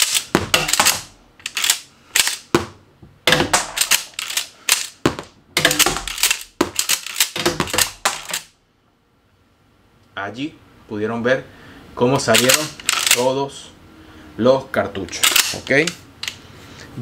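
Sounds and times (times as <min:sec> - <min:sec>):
shotgun slide racking: 0:00.0 - 0:02.5, 0:03.3 - 0:05.0, 0:05.6 - 0:08.5, 0:12.4 - 0:13.2
shells falling onto table: 0:00.0 - 0:08.5.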